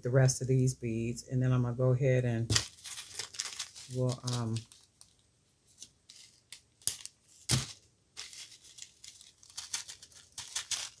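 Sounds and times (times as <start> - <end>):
plastic bags crinkling: 2.5 - 5.2, 7.5 - 11.0.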